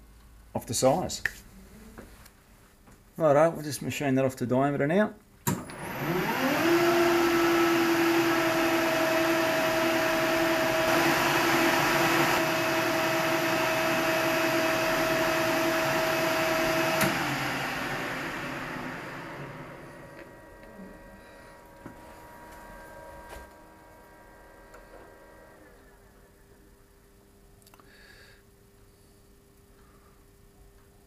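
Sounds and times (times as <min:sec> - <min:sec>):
lathe motor whining: 0:05.6 - 0:26.0
lathe switch click: 0:17.0 - 0:17.2.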